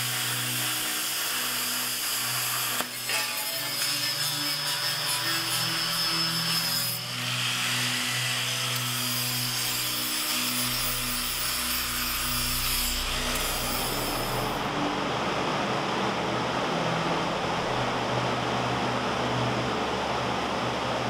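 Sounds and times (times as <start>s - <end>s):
angle grinder grinding steel: 0.0s - 14.7s.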